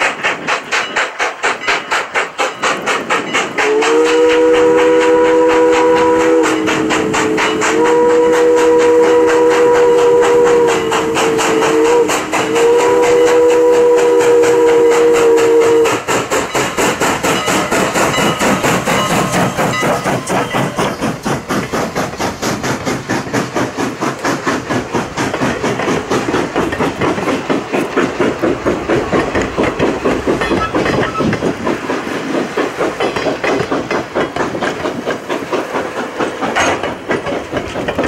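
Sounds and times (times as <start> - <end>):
steam exhaust chuffs: 0.0 - 38.0
steam whistle blasts: 3.6 - 16.1.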